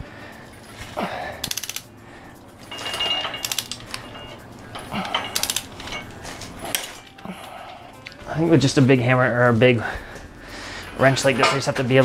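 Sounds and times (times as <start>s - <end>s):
ratchet wrench clicking: 1.4s - 1.9s, 2.8s - 4.1s, 5.3s - 5.8s.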